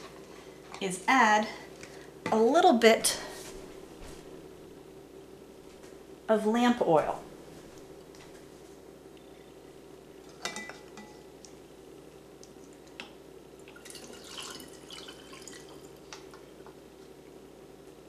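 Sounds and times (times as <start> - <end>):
oil trickling into bottle: 13.7 - 15.9.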